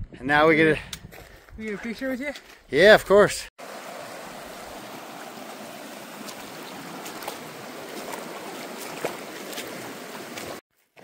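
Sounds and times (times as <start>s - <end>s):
creek running over rocks: 3.6s - 10.6s.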